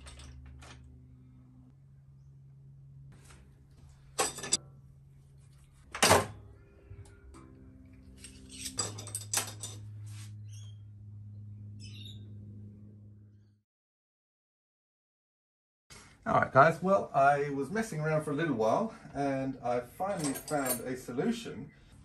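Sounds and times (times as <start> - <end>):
steady low hum: 0.0 - 13.6
hand tools clanking on metal: 4.1 - 4.6, 8.2 - 9.8, 20.1 - 21.0.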